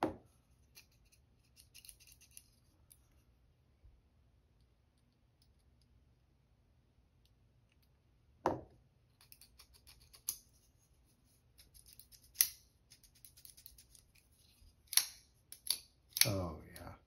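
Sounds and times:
faint small clicks and scrapes: 0:00.5 - 0:03.4, 0:09.1 - 0:16.3
knock: 0:08.5 - 0:08.7
folding knife blade clicking: 0:14.9 - 0:16.3.

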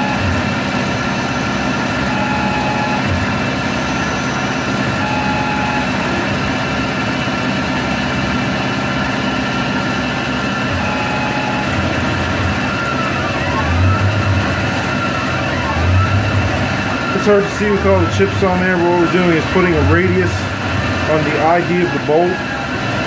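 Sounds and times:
high cutting whine: 0:00.0 - 0:23.0
lathe machine hum: 0:00.0 - 0:23.0.

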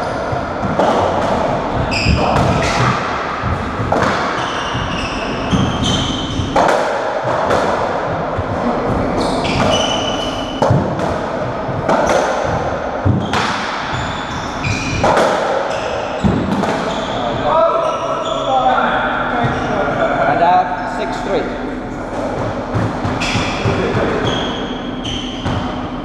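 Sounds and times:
shoes squeaking on wooden floor: 0:03.9 - 0:06.6, 0:08.6 - 0:10.6, 0:13.2 - 0:18.6.

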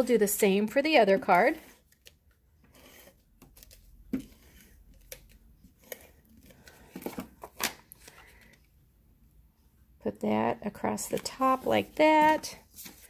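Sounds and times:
paper handling: 0:11.0 - 0:13.0.

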